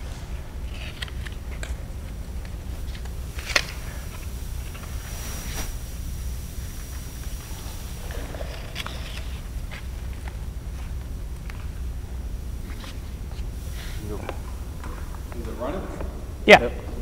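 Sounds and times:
faint high whine: 0:00.0 - 0:17.0
steady low hum: 0:00.0 - 0:17.0.

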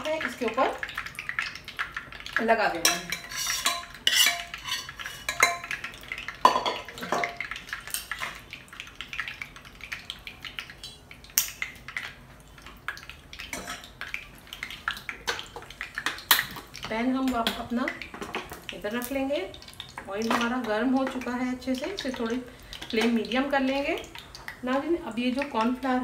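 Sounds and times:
spoon clanking on bowl: 0:02.8 - 0:05.7
spoon scraping metal bowl: 0:02.9 - 0:05.5.

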